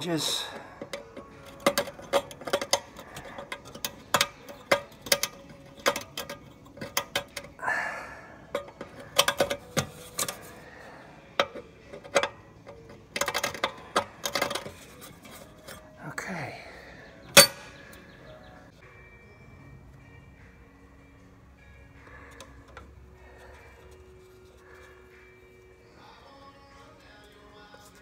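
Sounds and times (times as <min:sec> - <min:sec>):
bolt and nut clinking: 0:00.5 - 0:07.6, 0:08.5 - 0:10.5, 0:11.4 - 0:15.8, 0:17.3 - 0:18.0.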